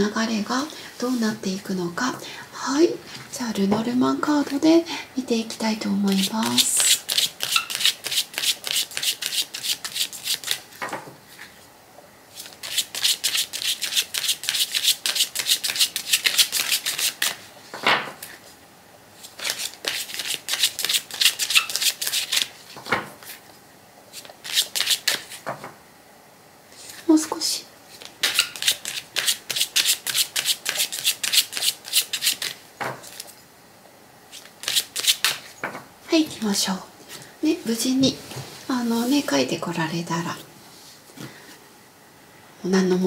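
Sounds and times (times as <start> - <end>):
cards being shuffled: 6.1 - 10.8, 12.4 - 17.5, 19.2 - 23.4, 24.1 - 25.4, 27.9 - 33.4, 34.3 - 35.5.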